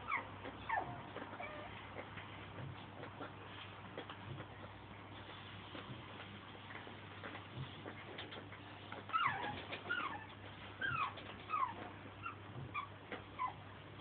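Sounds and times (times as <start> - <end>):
puppy whimpering: 0.0 - 2.1, 9.0 - 13.7.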